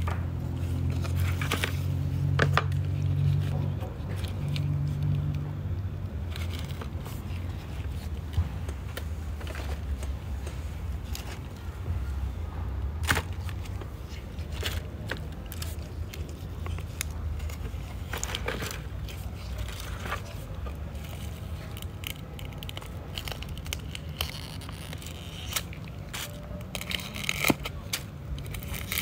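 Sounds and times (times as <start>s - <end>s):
dry leaves crackling and tearing: 0.4s - 5.4s, 13.0s - 29.0s.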